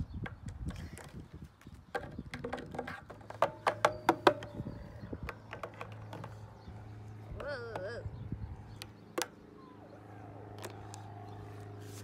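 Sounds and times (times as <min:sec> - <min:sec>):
plastic toys tapping on pole: 0:01.9 - 0:04.5, 0:05.2 - 0:06.4.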